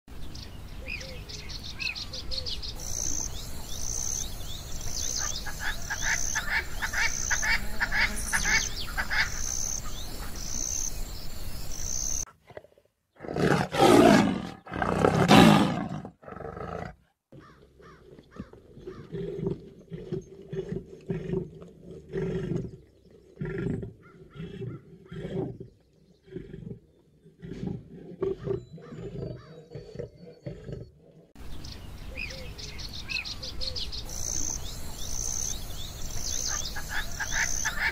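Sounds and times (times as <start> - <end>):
lion roaring: 12.6 - 31.0
chirps: 28.3 - 37.9.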